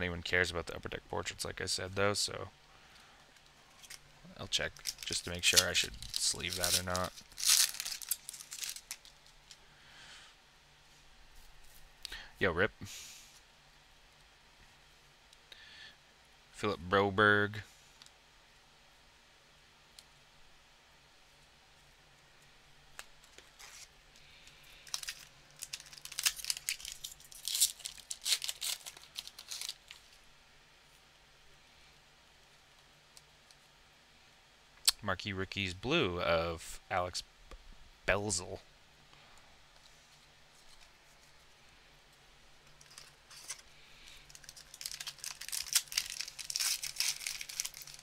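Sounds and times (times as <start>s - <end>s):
foil wrapper crinkling and tearing: 4.6s - 9.6s, 23.0s - 30.2s, 42.7s - 48.0s.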